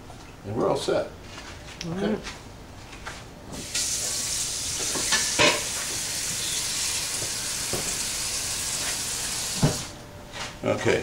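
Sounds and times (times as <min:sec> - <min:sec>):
faucet running into sink: 0:03.6 - 0:09.9.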